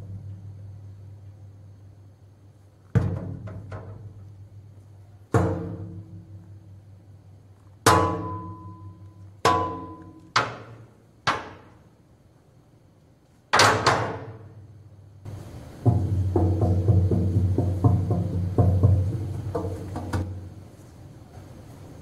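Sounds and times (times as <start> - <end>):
hollow blows on metal dumpster: 2.9 - 4.3, 5.3 - 6.7, 7.8 - 11.8, 13.5 - 14.6, 15.3 - 20.6.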